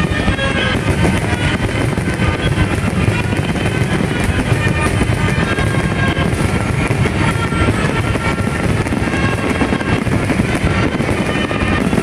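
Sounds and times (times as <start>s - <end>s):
fireworks shells bursting: 0.0s - 12.0s.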